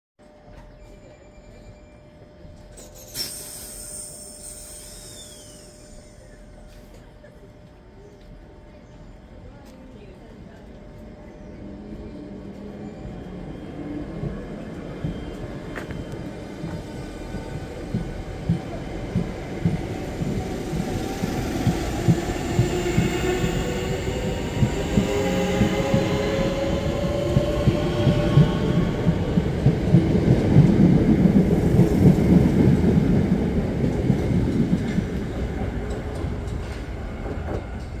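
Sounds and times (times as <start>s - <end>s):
electric train motors whining: 2.8s - 6.6s.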